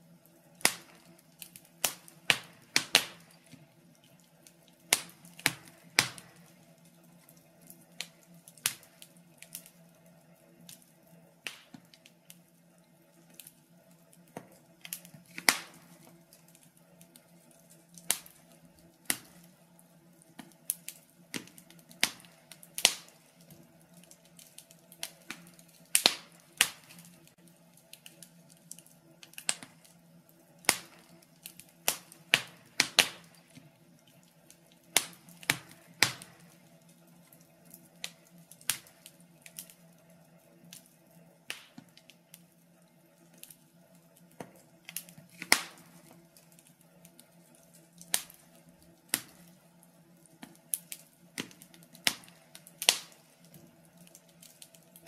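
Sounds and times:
wood fire crackling: 0.0 - 55.0.

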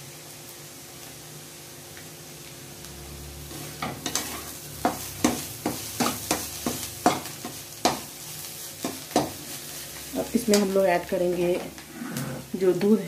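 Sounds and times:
spatula scraping a pan: 11.8 - 12.5.

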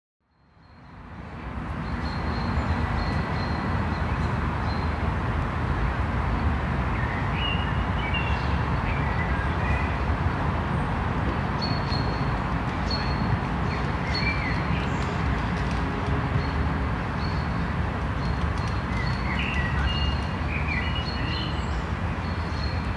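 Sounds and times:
birds chirping: 18.2 - 22.9.

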